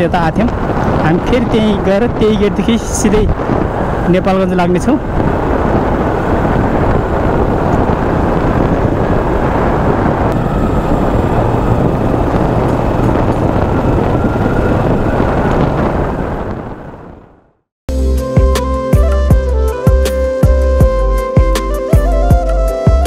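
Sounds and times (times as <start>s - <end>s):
wind rushing over microphone: 0.0s - 17.7s
motorcycle engine running: 3.3s - 17.1s.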